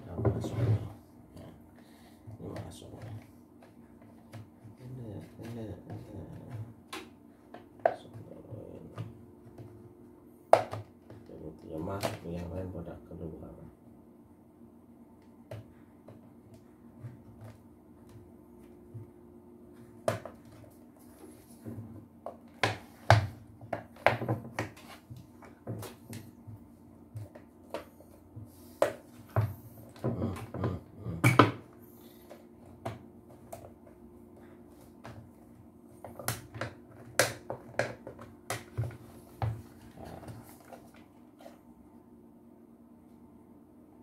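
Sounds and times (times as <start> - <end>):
faint steady hum: 0.0 - 44.0.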